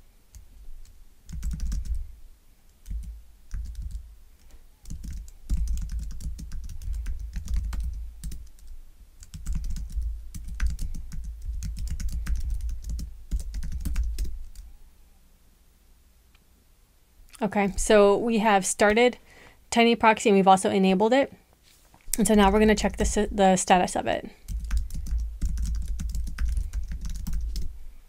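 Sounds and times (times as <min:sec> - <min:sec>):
keyboard typing: 0:00.3 - 0:02.0, 0:02.7 - 0:04.1, 0:04.8 - 0:14.7, 0:24.4 - 0:27.7.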